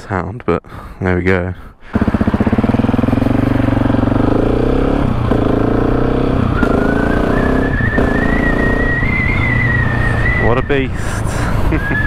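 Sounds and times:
motorcycle engine accelerating: 1.8 - 10.8.

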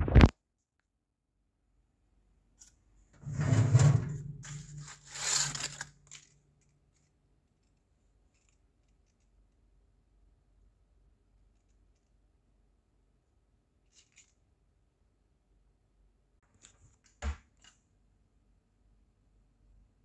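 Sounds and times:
baking paper crinkling: 4.2 - 9.3.

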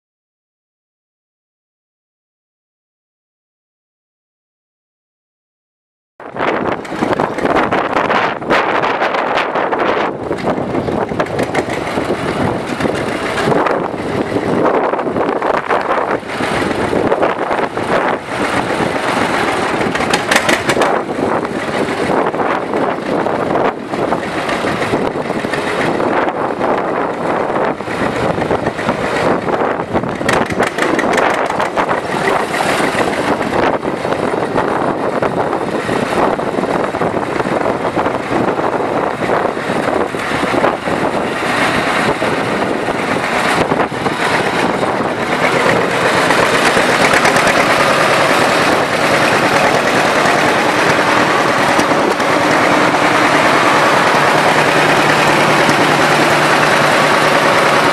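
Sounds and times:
tractor engine running: 6.2 - 57.9.

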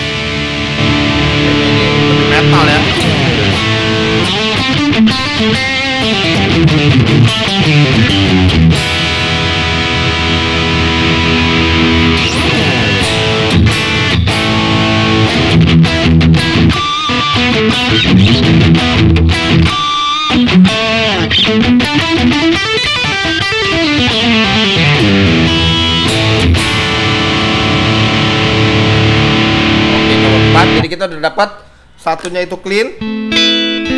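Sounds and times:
distorted electric guitar: 0.0 - 30.9, 33.0 - 33.9.

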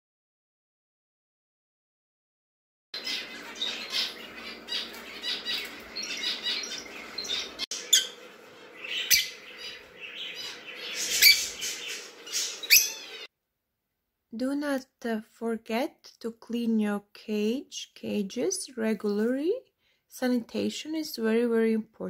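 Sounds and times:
budgerigars chattering: 3.0 - 13.3
finch chirping: 3.0 - 13.3.

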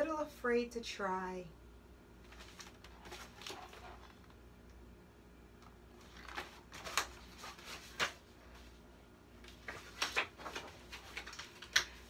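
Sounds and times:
book pages rustling: 2.2 - 4.4, 6.0 - 8.8, 9.4 - 12.0.

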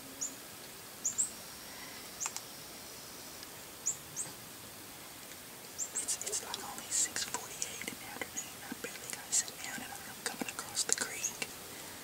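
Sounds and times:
small bird chirping: 1.0 - 1.4, 3.8 - 4.3, 5.7 - 11.5.

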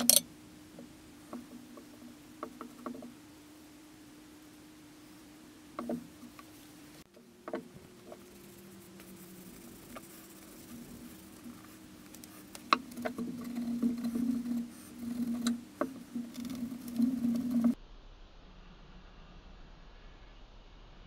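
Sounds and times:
low steady hum: 0.0 - 21.0
cloth rubbing a steel blade: 7.9 - 17.8.

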